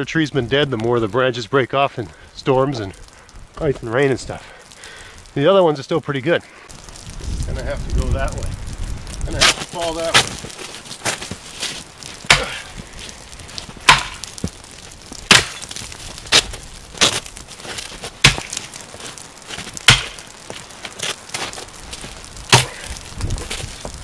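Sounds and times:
axe chopping wood: 12.2 - 12.7, 13.8 - 14.6, 15.3 - 15.7, 18.2 - 18.6, 19.9 - 20.2, 22.5 - 23.0.

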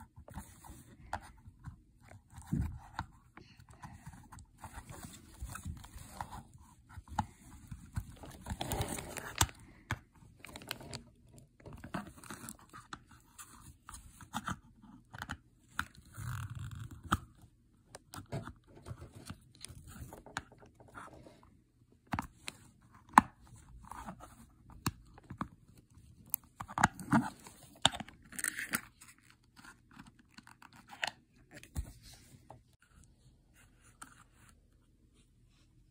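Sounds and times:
plastic scraping and rustling: 2.3 - 14.4.

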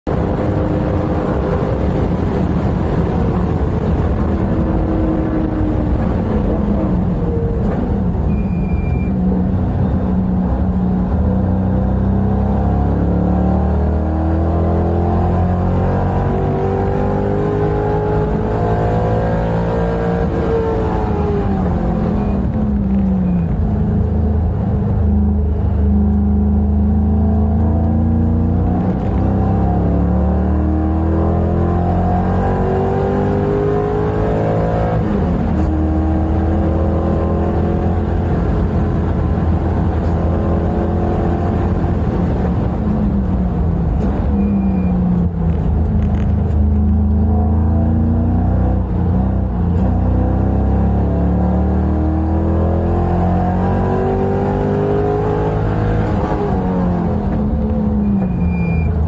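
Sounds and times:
race car engine revving: 45.6 - 58.8.

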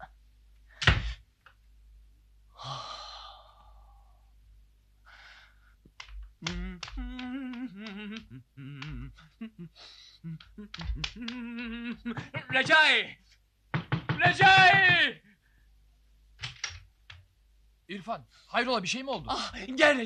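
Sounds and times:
man sighing: 2.5 - 4.2, 6.5 - 12.3.

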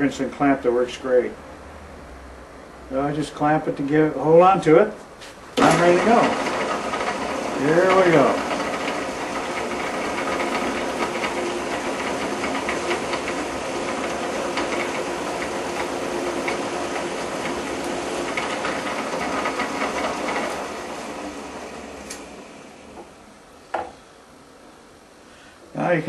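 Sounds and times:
drill press boring into wood: 5.6 - 23.0.

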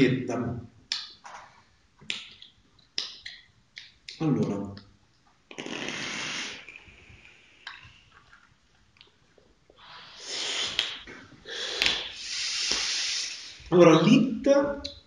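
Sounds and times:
breathy vaping exhales: 5.6 - 7.2.

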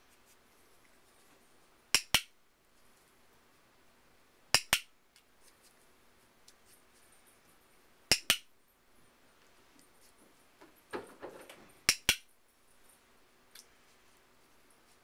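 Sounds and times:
soft rustling: 0.0 - 1.8, 5.3 - 7.8, 9.0 - 11.8, 12.5 - 15.0.

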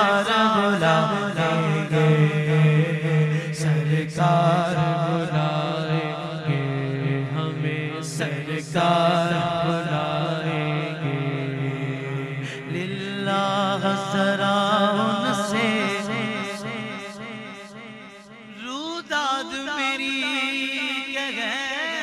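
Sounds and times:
men singing unaccompanied: 0.0 - 6.6.

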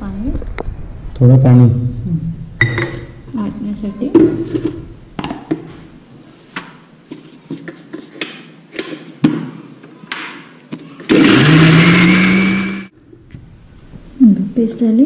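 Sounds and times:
mixer grinder motor whirring: 11.1 - 12.9.

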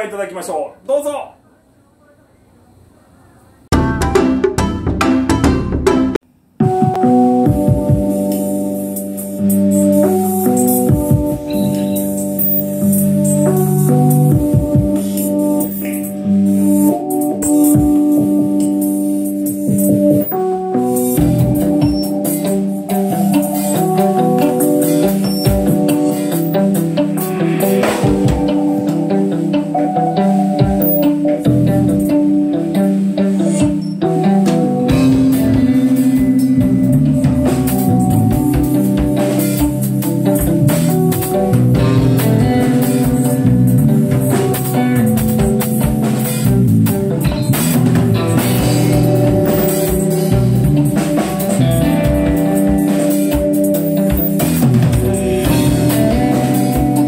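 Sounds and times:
busy drumming: 3.7 - 8.4, 10.0 - 11.5, 12.2 - 16.2, 21.1 - 32.2, 33.6 - 57.0
live rock band: 3.7 - 57.0
ringing guitar notes: 10.1 - 18.8, 19.6 - 57.0.

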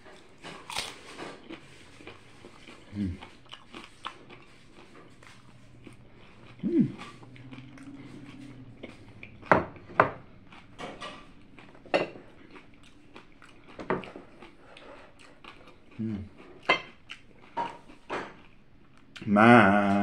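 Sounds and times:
person humming: 2.9 - 3.2, 6.5 - 8.7, 16.0 - 16.3, 19.3 - 20.0.

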